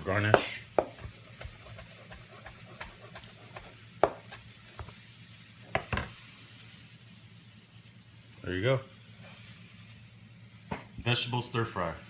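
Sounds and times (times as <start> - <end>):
knife chopping on cutting board: 0.2 - 5.0.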